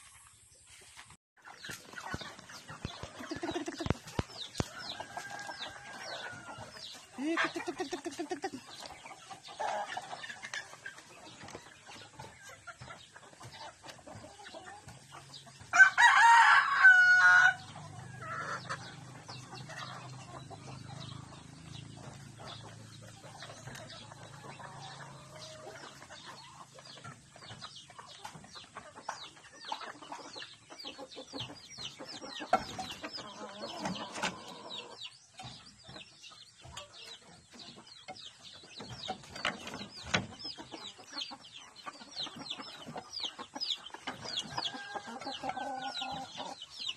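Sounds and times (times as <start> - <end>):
chickens clucking: 0.0 - 46.9
rooster crowing: 15.7 - 17.6.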